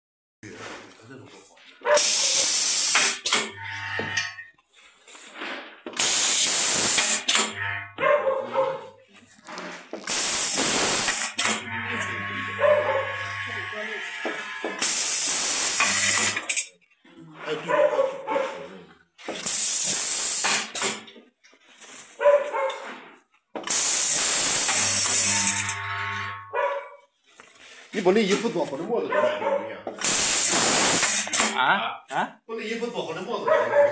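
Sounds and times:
compressed air hiss: 2.0s - 3.2s, 6.0s - 7.2s, 10.1s - 11.4s, 19.4s - 20.8s, 30.0s - 31.5s
low machine buzz: 11.6s - 14.2s, 24.9s - 26.6s.

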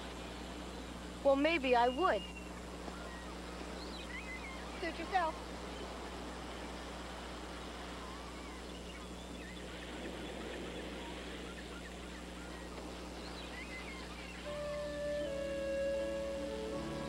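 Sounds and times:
faint bird calls: 1.8s - 17.0s
music: 14.5s - 17.0s.

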